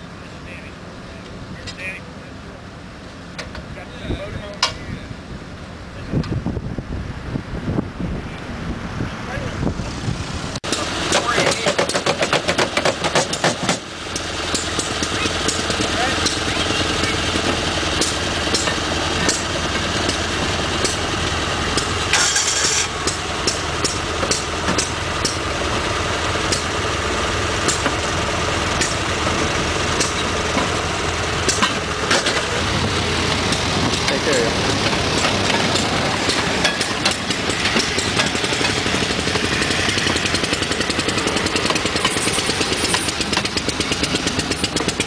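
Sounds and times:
engine idling: 0:09.3 - 0:45.0
brief hiss: 0:22.1 - 0:23.0.

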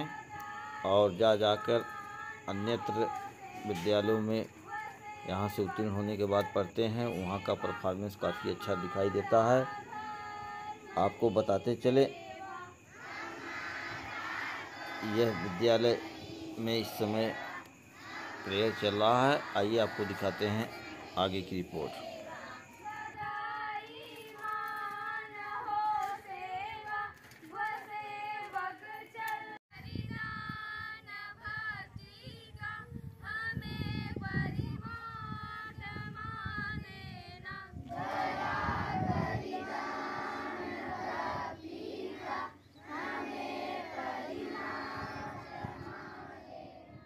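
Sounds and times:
children singing together: 0:07.1 - 0:23.4, 0:37.8 - 0:47.0.

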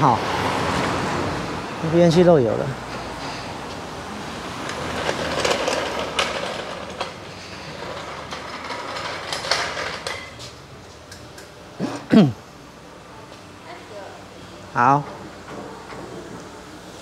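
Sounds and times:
metal wheels rattling on concrete: 0:04.5 - 0:10.5.

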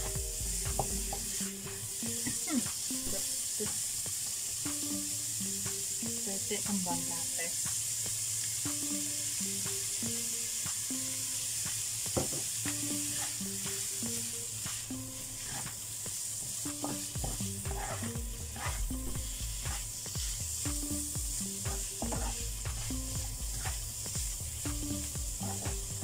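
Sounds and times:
faint repeating melody: 0:00.0 - 0:03.4, 0:20.4 - 0:26.0
food sizzling in wok: 0:00.0 - 0:26.0.

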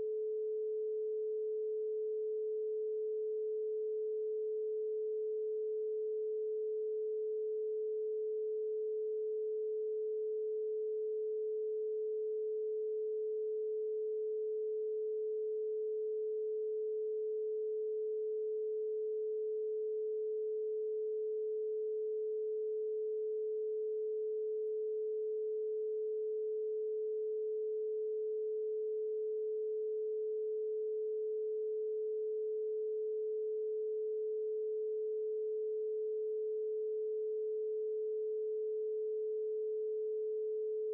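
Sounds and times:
steady electronic sine tone: 0:00.0 - 0:40.9.

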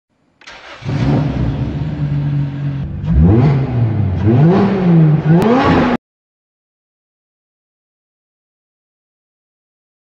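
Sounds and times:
car engine revving: 0:00.5 - 0:06.0.

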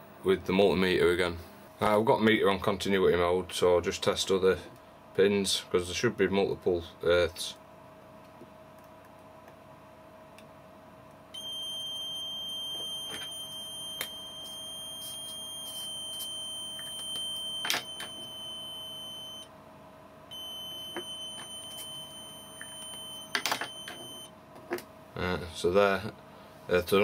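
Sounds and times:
multimeter continuity beep: 0:11.4 - 0:19.5, 0:20.3 - 0:24.3.

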